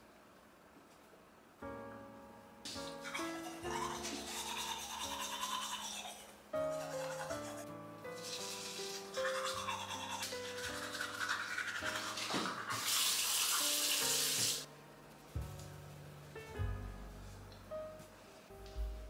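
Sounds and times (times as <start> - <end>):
toothbrush scrubbing teeth: 3.0 - 14.6.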